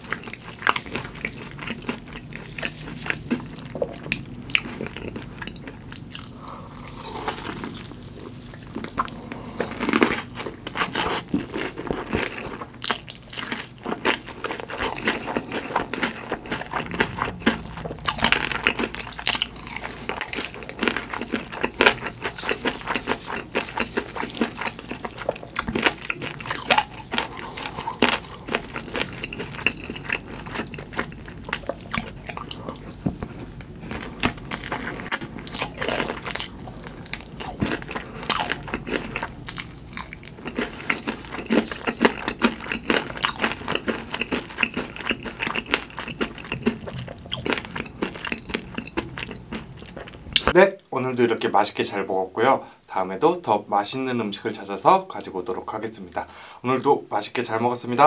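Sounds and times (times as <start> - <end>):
chewing crispy food: 0.0 - 50.6.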